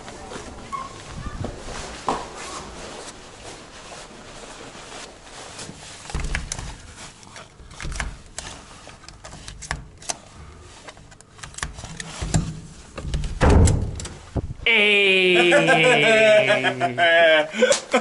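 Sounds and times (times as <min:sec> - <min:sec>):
plastic card clicks and scrapes: 0:06.2 - 0:12.7.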